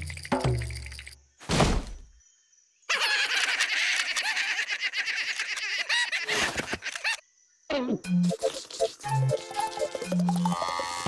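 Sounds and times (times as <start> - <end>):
cartoon music: 8.0 - 11.0.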